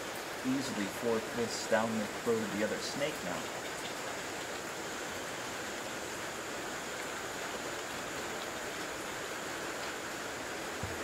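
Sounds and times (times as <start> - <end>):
rain falling: 0.0 - 11.0.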